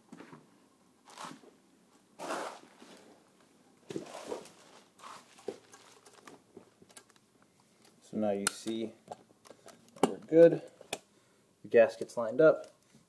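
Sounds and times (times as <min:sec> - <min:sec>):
rustling on plastic sheet: 0:03.9 - 0:07.0.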